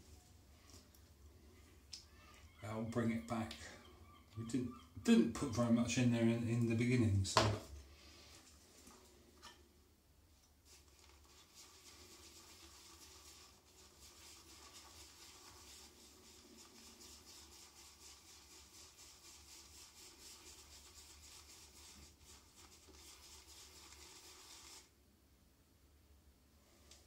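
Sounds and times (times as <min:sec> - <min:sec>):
shaving brush swishing lather: 0:10.6 - 0:24.9.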